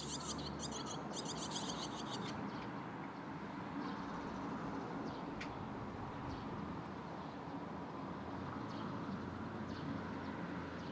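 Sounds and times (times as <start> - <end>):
fledglings chirping: 0.0 - 2.4.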